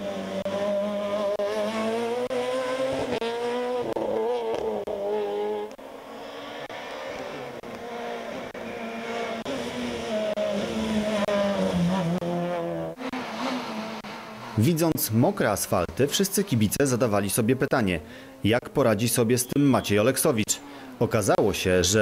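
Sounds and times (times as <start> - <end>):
rally car engine at full throttle: 0.0 - 17.4.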